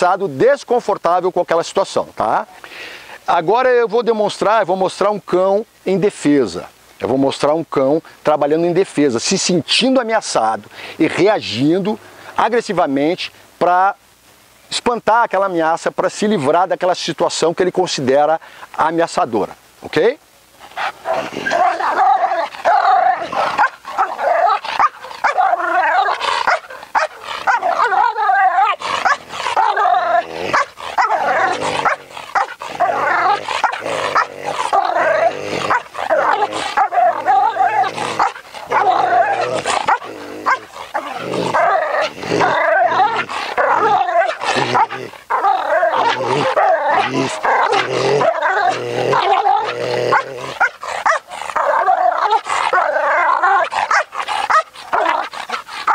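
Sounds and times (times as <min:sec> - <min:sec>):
dog barking hard: 0:21.0 - 0:55.9.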